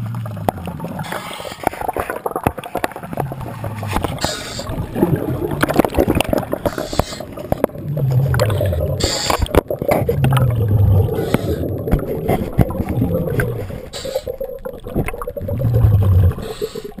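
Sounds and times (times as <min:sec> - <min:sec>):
bubbling rumble of exhale: 0:00.0 - 0:17.0
regulator inhale hiss: 0:04.2 - 0:04.8, 0:06.7 - 0:07.4, 0:09.0 - 0:09.6, 0:11.2 - 0:11.7, 0:13.6 - 0:14.4, 0:16.3 - 0:17.0.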